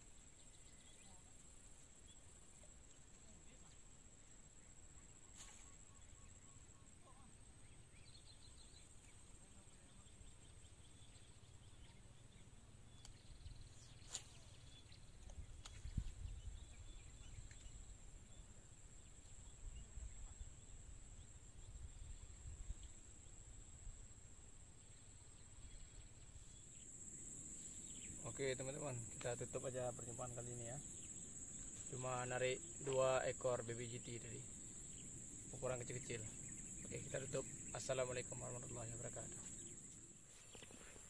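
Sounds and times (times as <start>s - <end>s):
wind rumble on microphone: 15.0s - 17.8s, 19.4s - 24.0s.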